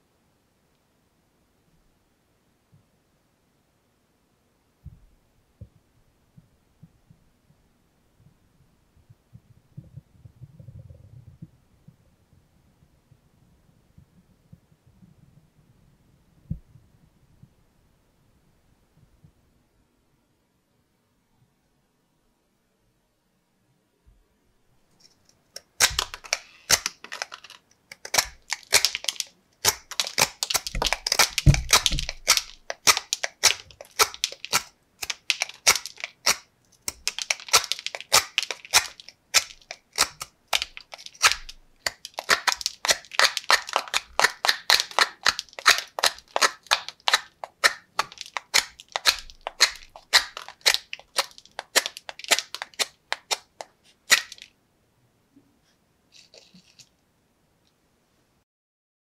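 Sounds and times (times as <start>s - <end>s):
knife whittling wood: 25.6s - 54.5s.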